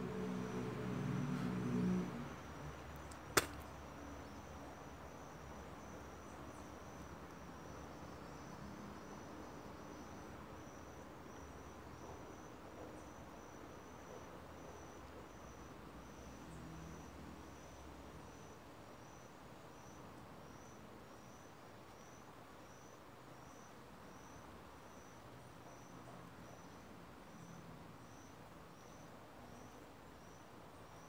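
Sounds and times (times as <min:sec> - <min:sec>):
sharp click: 0:03.1 - 0:03.7.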